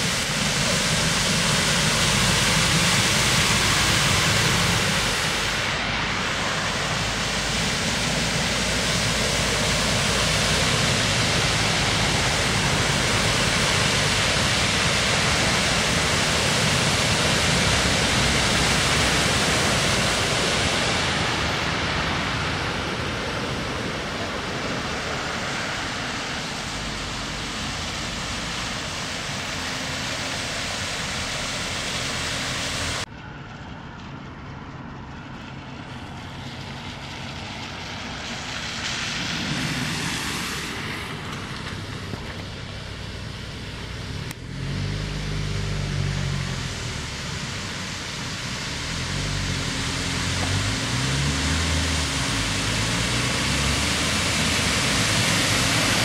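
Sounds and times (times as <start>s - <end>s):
tyres throwing up water spray: 0.0s - 33.1s, 36.2s - 56.0s
car engines: 0.0s - 56.0s.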